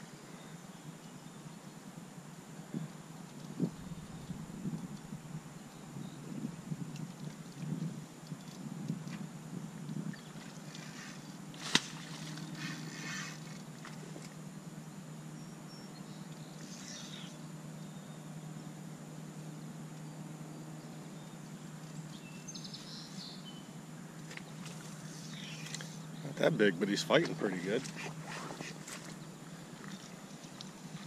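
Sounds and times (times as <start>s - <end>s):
low outdoor hum: 0.0s - 31.0s.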